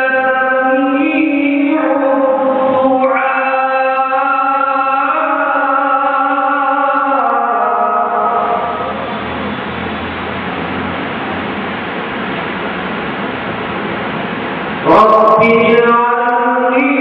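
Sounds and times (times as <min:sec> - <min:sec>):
man chanting into a microphone: 0:00.0 - 0:09.0, 0:14.8 - 0:17.0.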